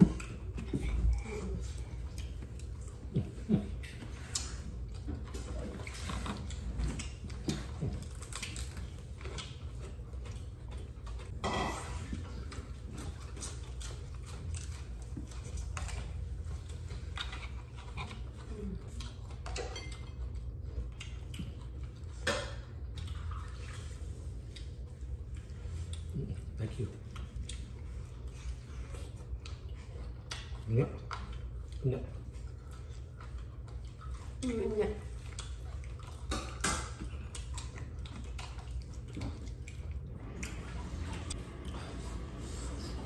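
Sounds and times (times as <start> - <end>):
steady low hum: 0.0 - 43.0
cutlery and dishes clinking: 11.4 - 12.1, 19.4 - 20.3.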